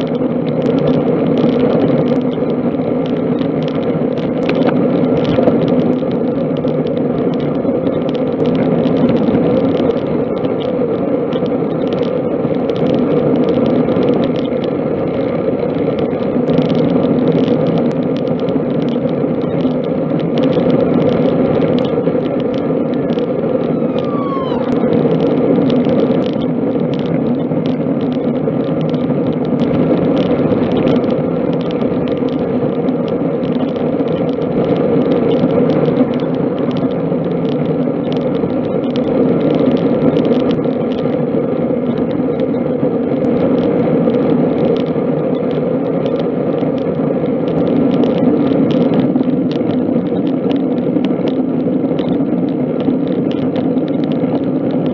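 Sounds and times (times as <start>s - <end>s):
bike tyre noise: 0.0s - 54.9s
wind rushing: 23.3s - 26.2s
falling squeak: 23.7s - 24.9s.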